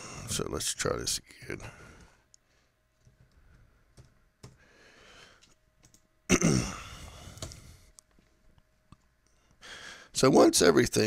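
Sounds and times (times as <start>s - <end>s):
breathy sound: 6.5s - 7.9s.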